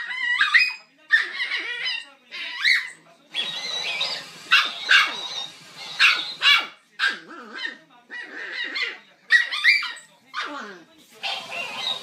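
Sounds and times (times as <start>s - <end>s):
small toy dog yapping: 0.0s - 10.5s.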